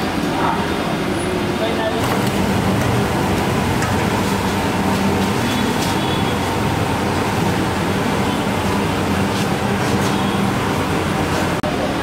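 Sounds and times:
frying in hot oil sizzling: 0:02.0 - 0:11.6
low steady hum: 0:02.0 - 0:11.6.

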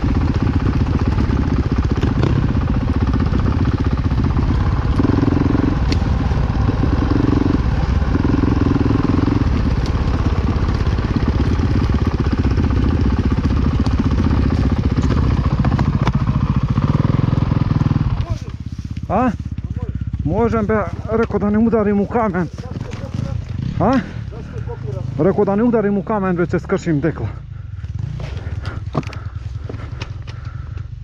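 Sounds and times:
dirt bike engine revving: 0:00.0 - 0:30.2
bike knocking over rocks: 0:22.5 - 0:23.6.

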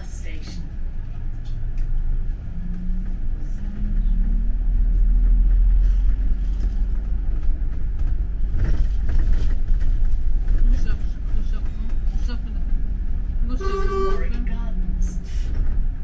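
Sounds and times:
bus engine rumble: 0:00.0 - 0:16.0.

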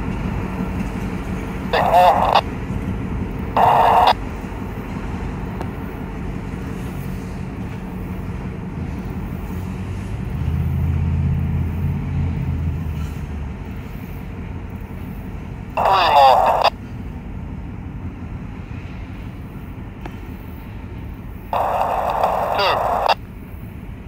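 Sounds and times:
diesel locomotive engine running: 0:00.0 - 0:24.0
short burst of voice: 0:01.7 - 0:02.4, 0:15.8 - 0:16.7, 0:21.6 - 0:23.2.

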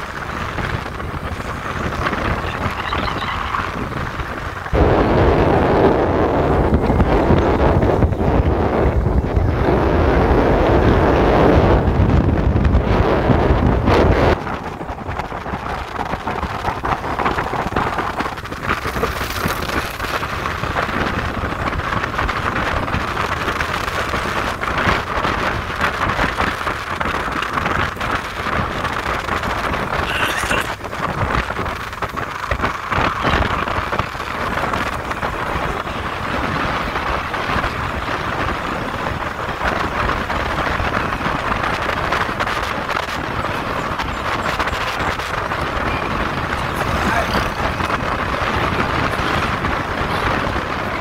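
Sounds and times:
road and vehicle noise: 0:00.0 - 0:51.0
wind rushing on microphone: 0:00.0 - 0:51.0.

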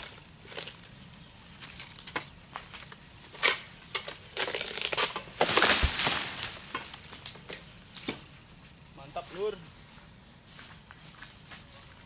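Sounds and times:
sickle scraping and cracking stalk: 0:00.0 - 0:08.3
high insect hum: 0:00.0 - 0:12.0
stalk crackling: 0:01.6 - 0:08.2.

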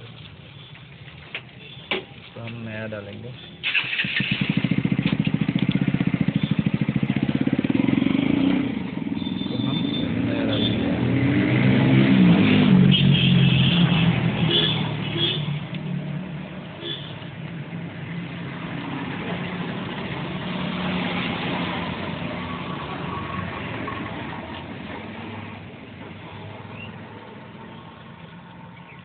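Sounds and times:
vehicle engine revving: 0:03.7 - 0:16.3.

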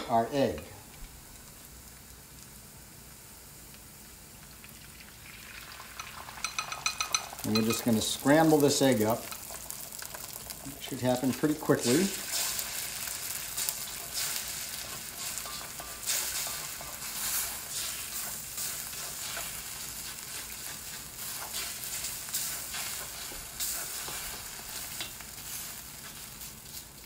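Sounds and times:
egg sizzling in hot oil: 0:00.6 - 0:27.0
spatula scraping wok: 0:06.5 - 0:27.0.

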